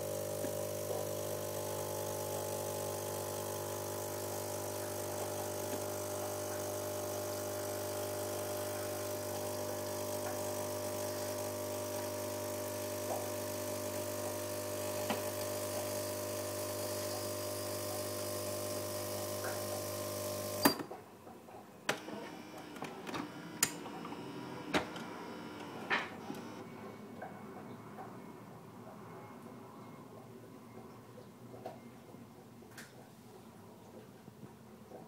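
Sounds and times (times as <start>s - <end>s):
espresso machine humming: 0.0s - 20.8s, 22.0s - 26.6s.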